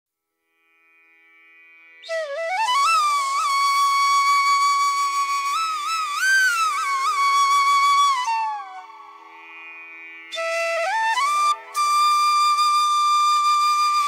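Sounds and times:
flute melody: 0:02.0 - 0:09.7, 0:10.3 - 0:14.0.

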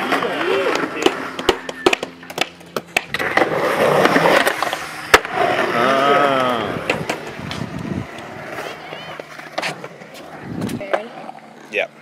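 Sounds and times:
skateboard clicks and clacks: 0:00.0 - 0:05.4
skateboard wheels rolling on concrete: 0:00.0 - 0:12.0.

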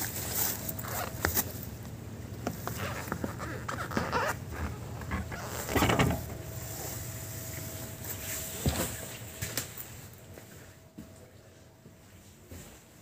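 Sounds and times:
footsteps inside bus: 0:00.0 - 0:13.0
loud scuffing noise: 0:06.3 - 0:11.1.

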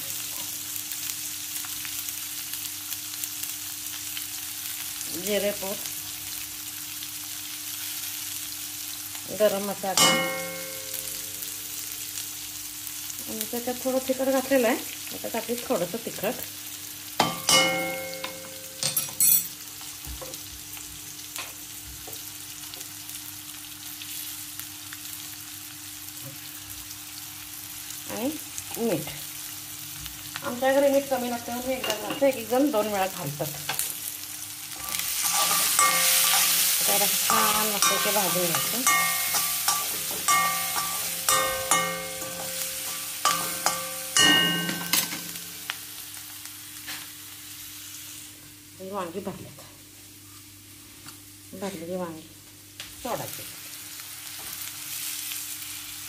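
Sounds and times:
food frying in hot oil: 0:00.0 - 0:56.0
metal spatula scraping pan: 0:34.8 - 0:45.4.

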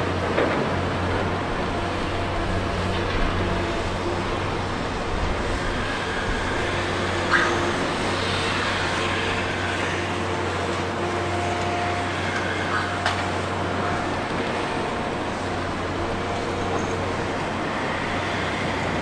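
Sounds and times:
excavator engine and hydraulics humming: 0:00.0 - 0:19.0.

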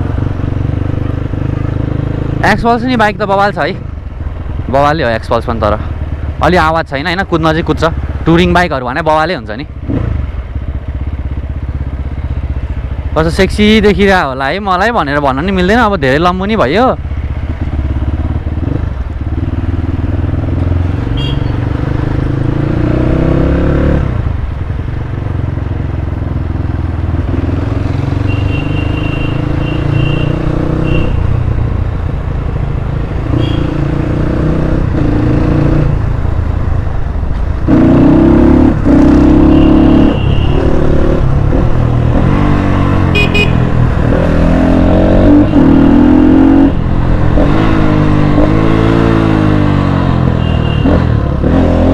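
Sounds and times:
short horn toots: 0:21.1 - 0:21.6, 0:28.2 - 0:31.2, 0:33.3 - 0:33.8, 0:43.1 - 0:43.6, 0:50.3 - 0:51.0
dirt bike engine revving: 0:37.7 - 0:51.9.

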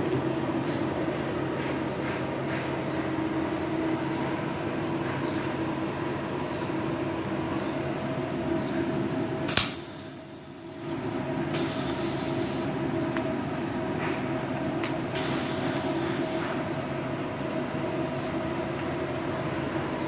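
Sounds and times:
sharp click: 0:09.5 - 0:09.8
high hiss: 0:11.5 - 0:12.8, 0:15.1 - 0:16.6.

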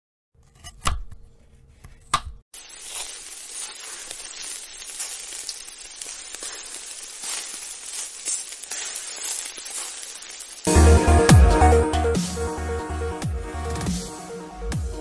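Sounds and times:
food sizzling in a wok: 0:02.5 - 0:11.0.

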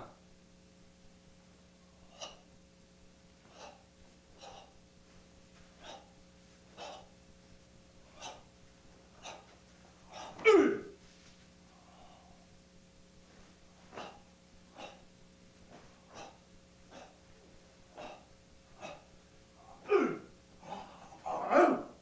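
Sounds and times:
sharp forced exhalations: 0:03.4 - 0:04.8.

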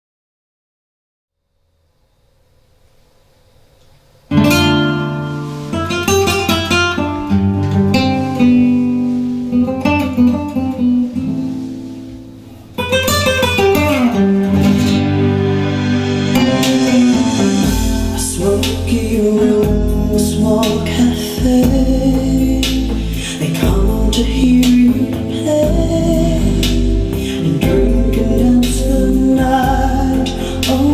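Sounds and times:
guitar-led music through speakers: 0:04.3 - 0:30.9
deep bass: 0:14.6 - 0:30.9.

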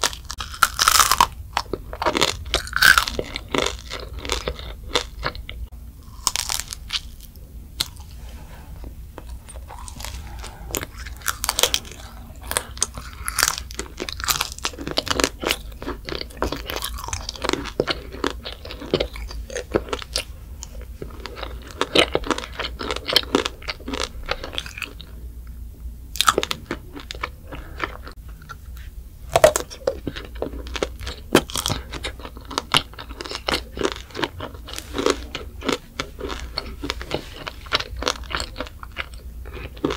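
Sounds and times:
child crunching candy shell: 0:00.0 - 0:08.1, 0:09.2 - 0:25.1, 0:29.4 - 0:39.9.

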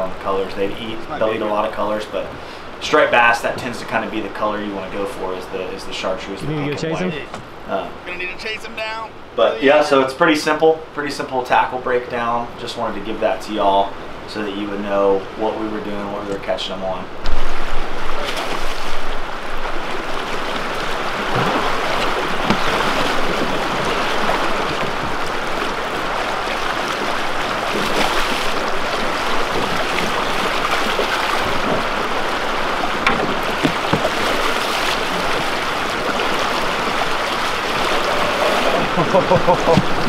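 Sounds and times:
river current rushing: 0:00.0 - 0:11.6, 0:17.0 - 0:40.0
loud low thump: 0:17.2 - 0:17.9
small knocks: 0:22.0 - 0:23.5, 0:33.0 - 0:34.7, 0:39.6 - 0:40.0.

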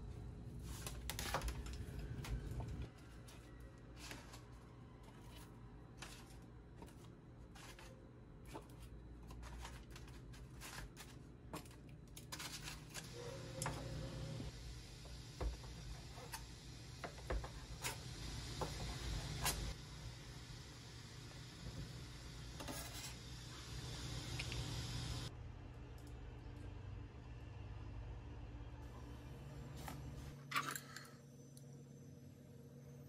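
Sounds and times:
paper and packaging rustling: 0:00.6 - 0:13.5.

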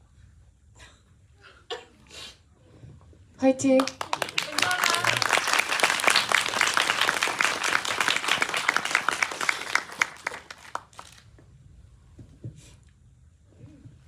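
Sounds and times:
audience applause: 0:03.8 - 0:11.2.

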